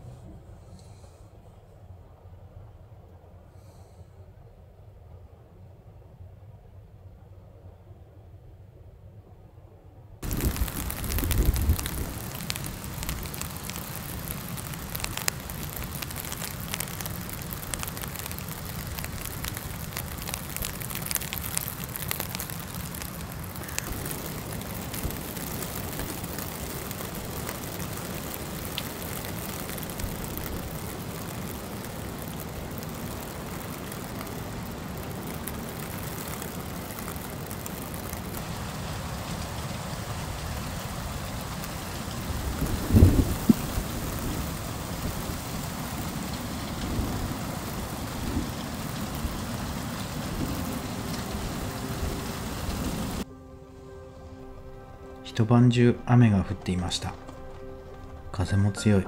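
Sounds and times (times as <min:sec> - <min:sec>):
rain beating on a vehicle roof: 0:10.2 - 0:53.2, 0:56.7 - 0:58.6
strong wind: 0:10.2 - 0:53.3.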